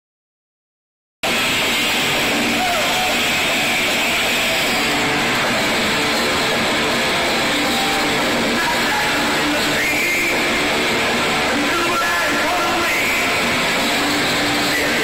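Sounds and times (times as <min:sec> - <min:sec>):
high held guitar tone: 0:01.2 - 0:15.0
live rock band: 0:01.2 - 0:15.0.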